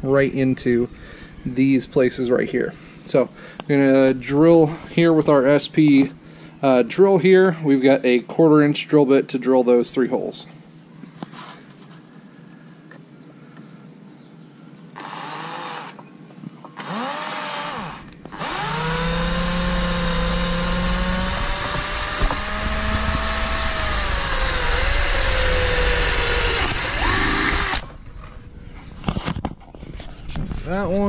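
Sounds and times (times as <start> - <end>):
power drill drilling plastic: 15.0 - 16.0, 16.8 - 27.9.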